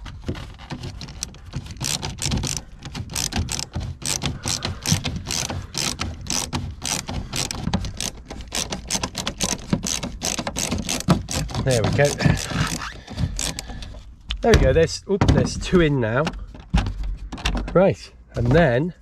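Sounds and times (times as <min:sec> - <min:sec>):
ratcheting screwdriver clicking: 0:01.0 - 0:14.4.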